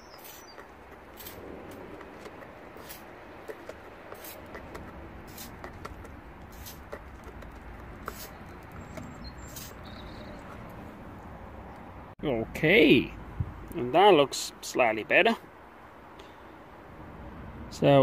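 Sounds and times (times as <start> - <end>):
wire brush scrubbing metal: 0.0 - 9.9.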